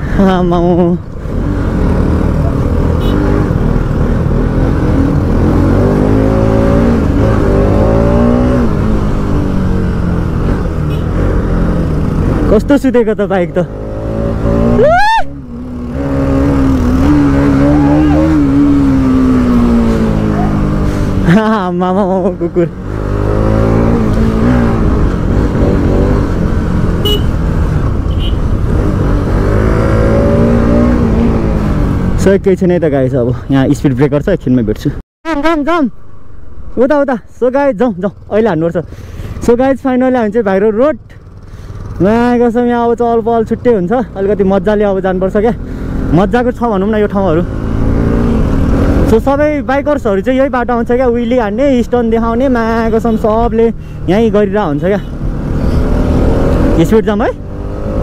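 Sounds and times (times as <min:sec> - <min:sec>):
motorcycle engine revving: 0:00.0 - 0:32.4, 0:37.8 - 0:58.0
wind and road noise: 0:00.0 - 0:58.0
motorcycle engine running: 0:15.4 - 0:32.2.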